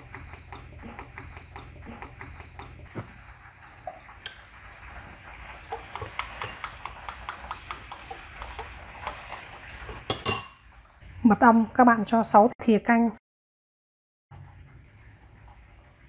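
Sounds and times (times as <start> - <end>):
hot oil crackling and popping: 0.0 - 11.0.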